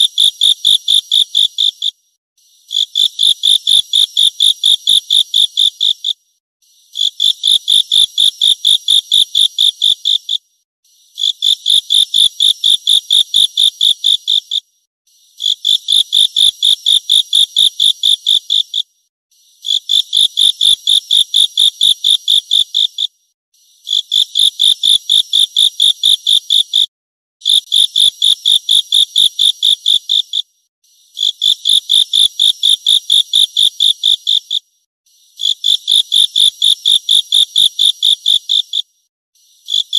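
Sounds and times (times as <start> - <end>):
insect stridulating: 39.7 - 39.9.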